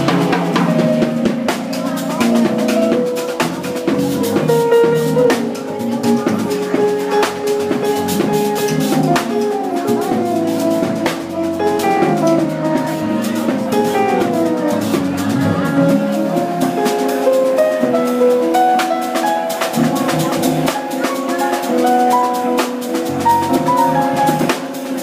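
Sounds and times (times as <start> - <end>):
drum kit playing: 0.0 - 25.0
electric keyboard runs: 0.0 - 25.0
electric bass: 7.3 - 17.0.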